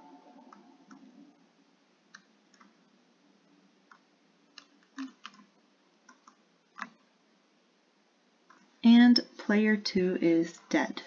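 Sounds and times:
keyboard keys clicking: 0:04.6 - 0:05.5, 0:06.1 - 0:07.0.

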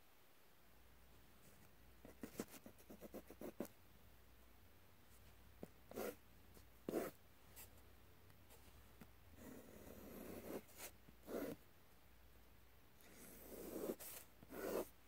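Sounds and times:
pen scratching on paper: 0:02.0 - 0:03.7, 0:05.9 - 0:06.2, 0:06.9 - 0:07.2, 0:09.4 - 0:11.6, 0:13.0 - 0:14.9.

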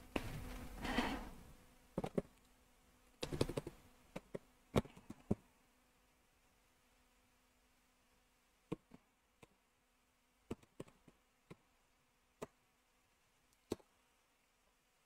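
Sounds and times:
faint low hum: 0:00.0 - 0:15.0
computer keyboard keystrokes: 0:03.2 - 0:05.4.

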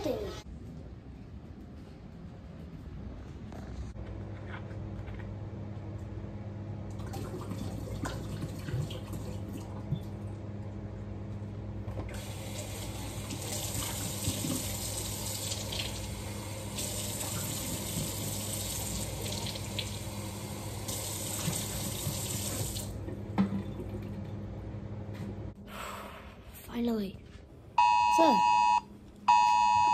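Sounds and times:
tap water running into sink: 0:12.1 - 0:20.1, 0:20.8 - 0:22.9.

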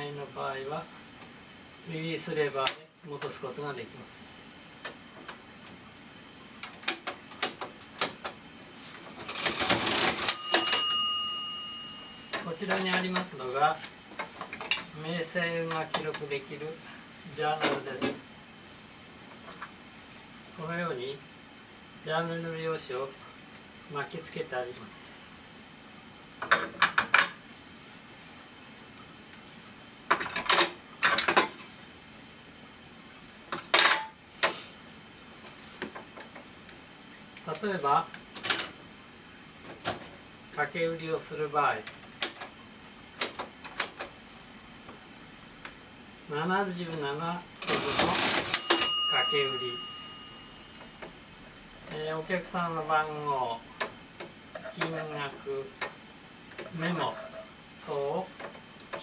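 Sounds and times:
register mechanism rattling: 0:09.2 - 0:11.0, 0:47.6 - 0:49.6
cash register bell ringing: 0:09.3 - 0:13.1, 0:47.6 - 0:50.8.

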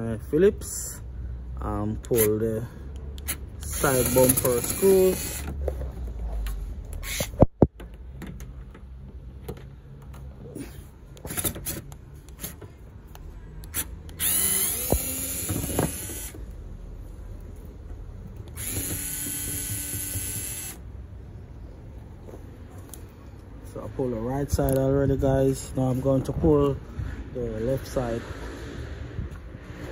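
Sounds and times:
cordless drill running: 0:03.6 - 0:05.5, 0:14.2 - 0:16.4, 0:18.5 - 0:20.8
knocks and clicks of handling tools: 0:07.2 - 0:10.3, 0:17.8 - 0:20.8.

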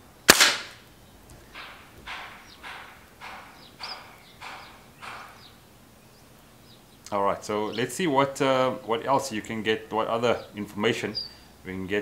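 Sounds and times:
air rifle shot: 0:00.3 - 0:00.8.

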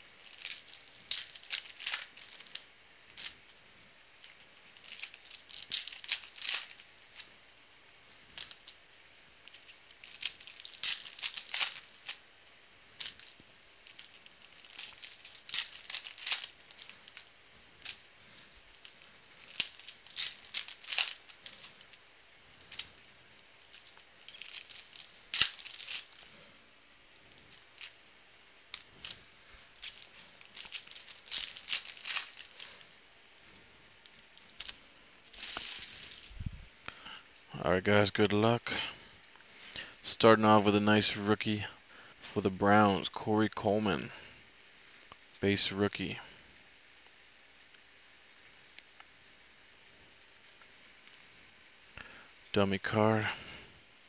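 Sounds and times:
foil wrappers tearing and crinkling: 0:00.0 - 0:03.6, 0:04.2 - 0:07.3, 0:08.4 - 0:08.8, 0:09.4 - 0:12.3, 0:13.0 - 0:22.0, 0:22.6 - 0:28.0, 0:28.6 - 0:32.9, 0:34.0 - 0:36.4.

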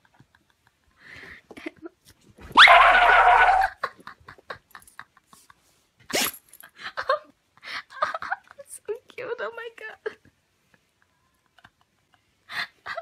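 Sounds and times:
dog whining: 0:02.5 - 0:03.8.

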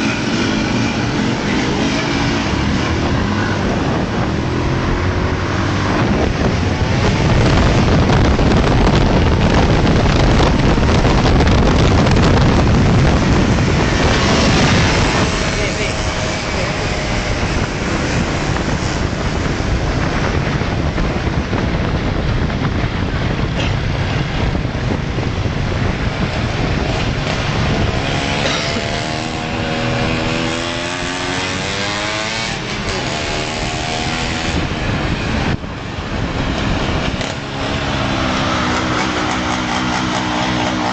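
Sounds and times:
motorcycle engines revving: 0:00.0 - 0:40.9
wind on microphone: 0:00.0 - 0:40.9.

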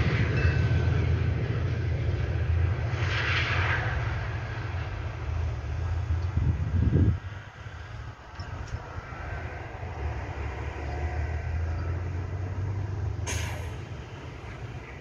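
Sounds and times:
bus and truck engines rumbling: 0:00.0 - 0:15.0
truck air brakes hissing: 0:13.2 - 0:14.6.

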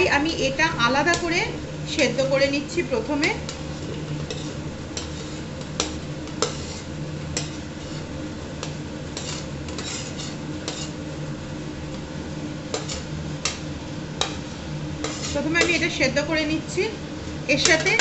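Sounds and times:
steady low hum: 0:00.0 - 0:18.0
metal spoon scraping and clinking: 0:03.2 - 0:11.0, 0:12.7 - 0:13.6, 0:15.0 - 0:15.9.

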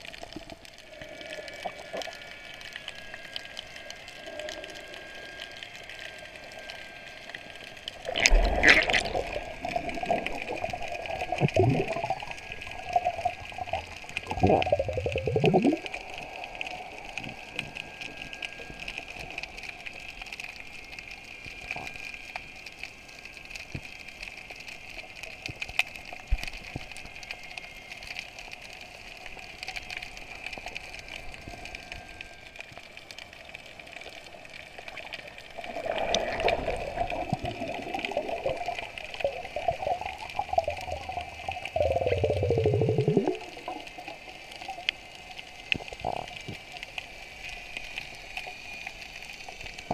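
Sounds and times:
faint clicks: 0:00.0 - 0:49.9
underwater watery hiss: 0:00.0 - 0:49.9
rush of water: 0:07.8 - 0:19.3, 0:34.8 - 0:48.8.

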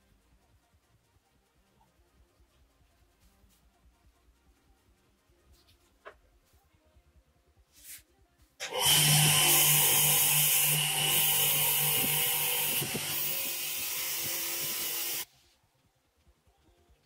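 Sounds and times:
grinder motor hum: 0:08.6 - 0:15.3
wire wheel scrubbing metal: 0:08.6 - 0:15.3.

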